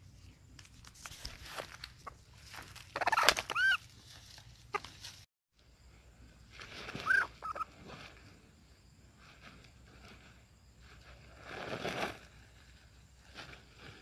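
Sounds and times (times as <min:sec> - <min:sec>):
rustling of grass and feathers: 0:00.0 - 0:05.3, 0:06.2 - 0:14.0
chicken squawking: 0:02.9 - 0:03.9, 0:07.0 - 0:07.7.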